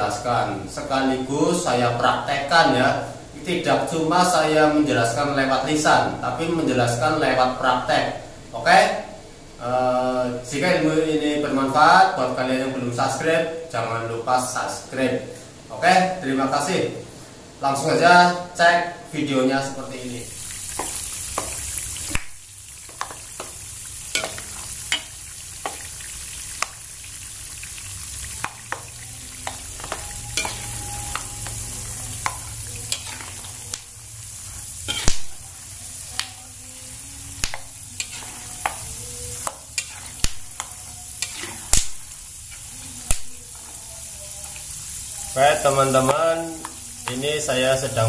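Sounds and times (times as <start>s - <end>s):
peanuts sizzling in oil: 19.6s - 48.0s
metal spatula scraping wok: 22.9s - 26.2s, 28.2s - 33.7s, 34.3s - 35.4s, 37.4s - 43.8s.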